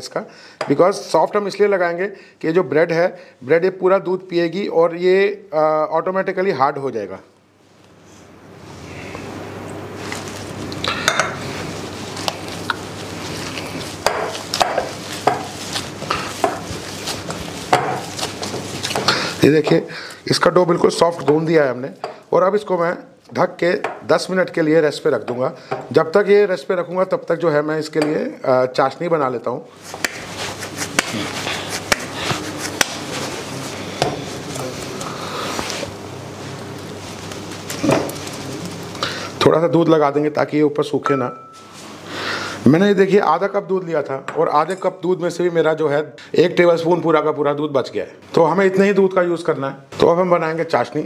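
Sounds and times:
dough squishing: 0:10.0 - 0:19.8, 0:29.8 - 0:36.0
sharp slaps: 0:30.0 - 0:30.3.

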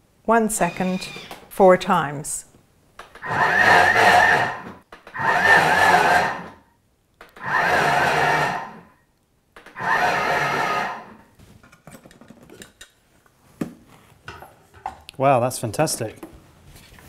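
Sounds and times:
food processor blade whirring: 0:03.2 - 0:06.6, 0:07.4 - 0:08.9, 0:09.7 - 0:11.2.

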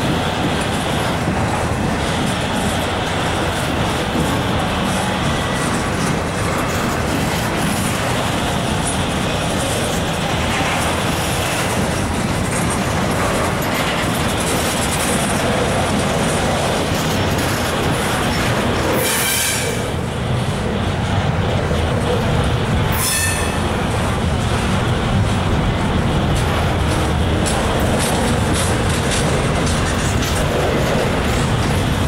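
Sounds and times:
train cars rumbling and rattling: 0:00.0 - 0:32.0
train wheel squeal: 0:18.9 - 0:19.9, 0:22.9 - 0:23.8.

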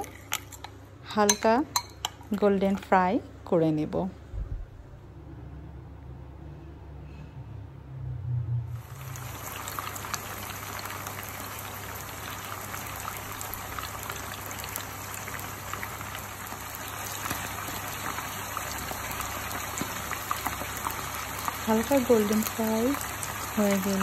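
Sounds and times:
chicken sizzling in hot oil: 0:08.8 - 0:24.0.

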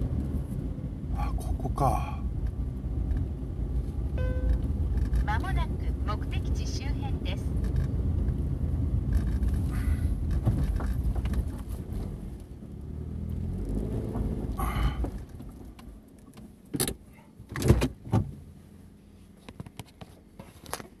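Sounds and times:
car cabin engine and tyre noise: 0:00.0 - 0:21.0
sharp clicks and knocks inside car: 0:07.4 - 0:12.5, 0:15.0 - 0:18.4.

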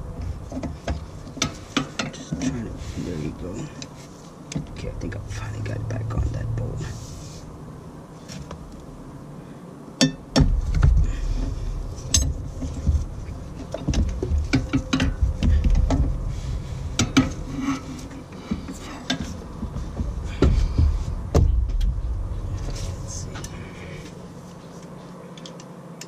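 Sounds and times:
microphone handling rumble: 0:10.4 - 0:24.5.

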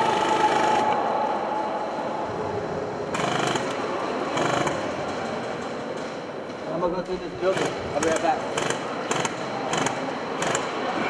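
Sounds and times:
steady background clatter: 0:02.1 - 0:11.0.

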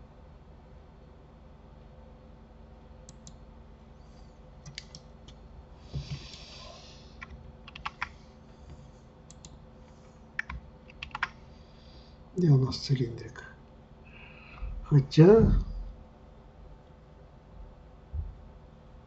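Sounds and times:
low steady hum: 0:00.0 - 0:19.0
keyboard and mouse clicks: 0:03.1 - 0:03.4, 0:04.6 - 0:05.4, 0:07.2 - 0:08.2, 0:09.3 - 0:09.6, 0:10.4 - 0:11.4.

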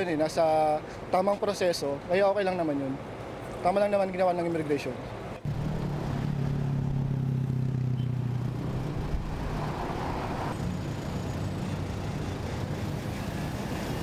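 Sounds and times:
cars passing on road: 0:04.8 - 0:14.0
vehicle engine humming: 0:05.3 - 0:14.0.

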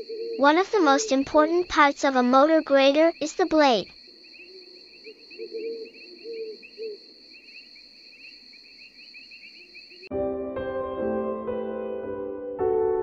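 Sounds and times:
crickets chirping: 0:00.0 - 0:10.1
piano music: 0:10.1 - 0:13.0.

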